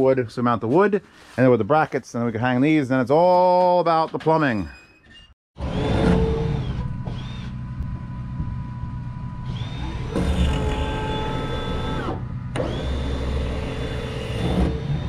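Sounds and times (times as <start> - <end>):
electric drill boring wood: 5.6 - 7.6, 9.4 - 15.0.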